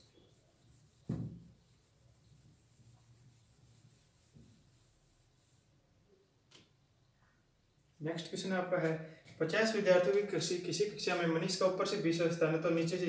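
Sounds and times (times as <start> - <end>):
duster rubbing on whiteboard: 0.0 - 5.7
thump: 1.0 - 1.5.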